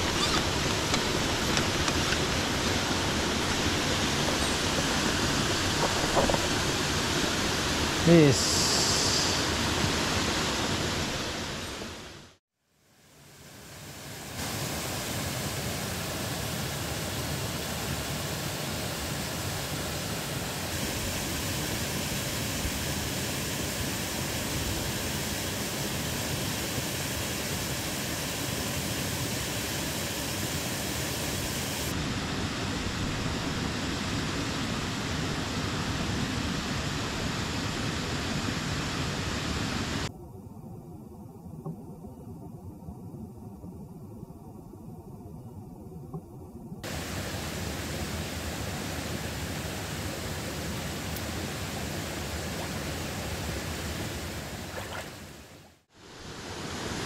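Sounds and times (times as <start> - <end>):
waterfall rushing: 0.0 - 12.4, 46.8 - 57.0.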